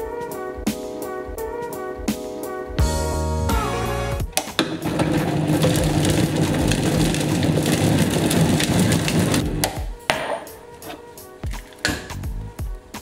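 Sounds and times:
blender running: 0:04.6 - 0:09.8
knock: 0:09.7 - 0:10.5.

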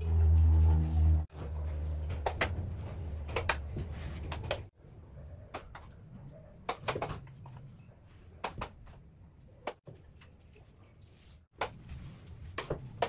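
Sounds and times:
low hum: 0:00.0 - 0:06.5.

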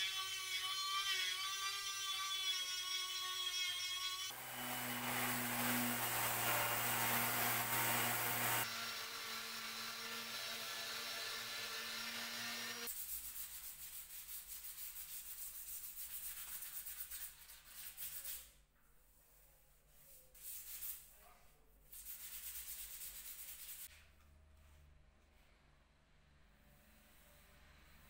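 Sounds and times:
orbital sander running: 0:04.3 - 0:09.8
sandpaper rasping on wood: 0:12.4 - 0:18.6, 0:21.9 - 0:23.9.

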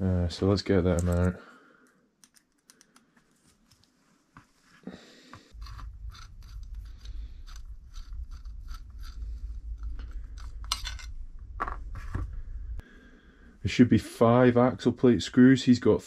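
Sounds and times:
steady low rumble: 0:05.5 - 0:15.0
metal parts clicking and scraping: 0:05.6 - 0:11.2.

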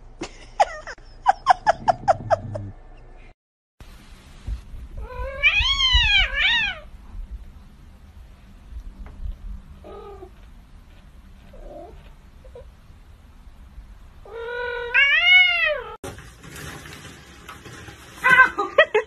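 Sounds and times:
kitten long wavering meow: 0:05.0 - 0:06.9.

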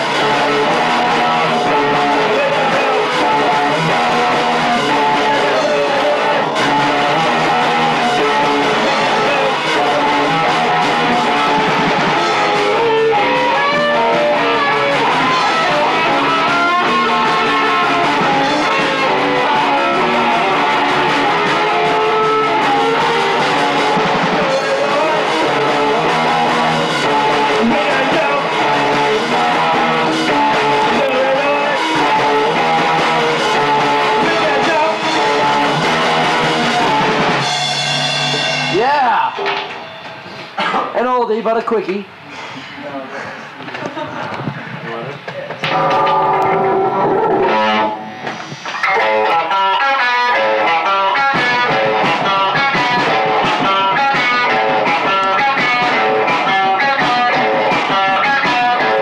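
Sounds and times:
punk rock band playing: 0:00.0 - 0:41.0, 0:43.5 - 0:59.0.

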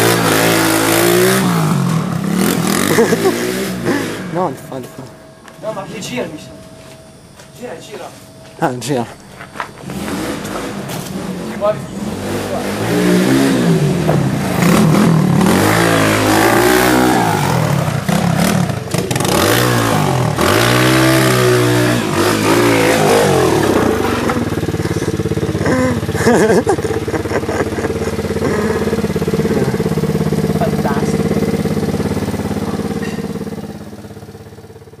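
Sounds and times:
pit bike engine revving: 0:00.0 - 0:08.3, 0:09.3 - 0:35.0.

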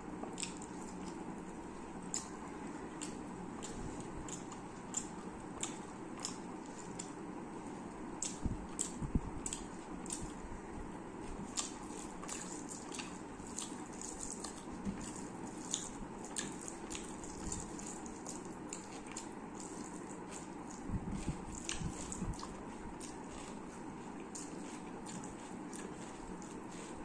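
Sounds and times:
chewing with wet clicks: 0:00.2 - 0:02.4, 0:03.0 - 0:10.4, 0:11.3 - 0:27.0
fingers squishing rice on a plate: 0:11.2 - 0:27.0.

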